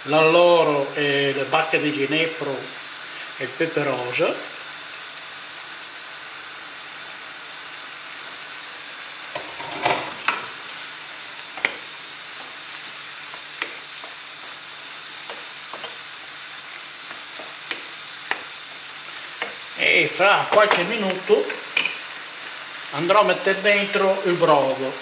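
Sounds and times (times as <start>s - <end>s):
meat sizzling in frying pan: 0.0s - 25.0s
wooden spoon knocking on pan: 15.2s - 16.0s.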